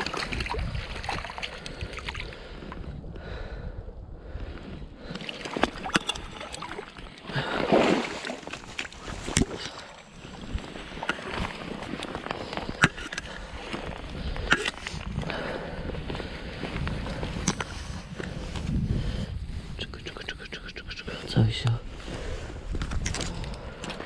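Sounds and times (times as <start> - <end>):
water splashing and sloshing: 0.0 - 2.9, 4.6 - 19.2
wind on microphone: 0.0 - 6.8, 10.2 - 21.0, 21.6 - 24.0.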